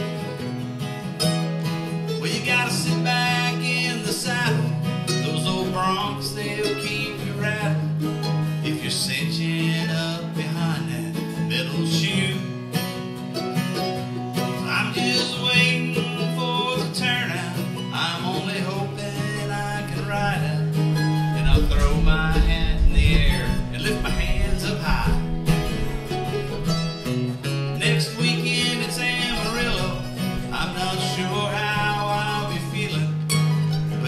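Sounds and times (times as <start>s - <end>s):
acoustic guitar: 0.0s - 34.0s
mandolin: 0.0s - 34.0s
low bass rumble: 21.3s - 27.0s.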